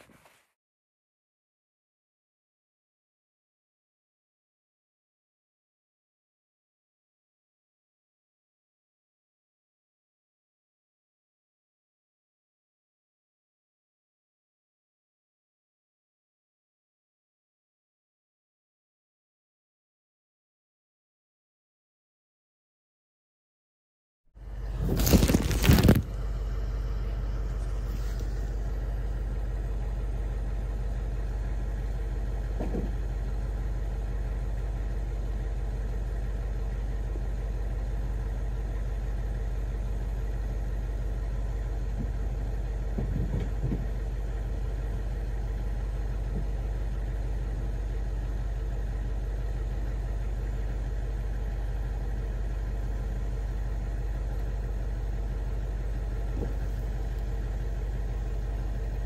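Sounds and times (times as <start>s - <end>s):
low engine-like drone: 24.4s - 59.0s.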